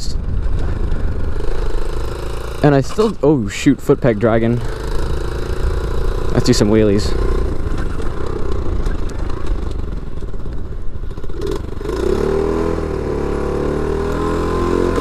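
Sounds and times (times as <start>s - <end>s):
small motorbike engine revving: 1.0s - 3.2s, 4.4s - 9.8s, 11.1s - 15.0s.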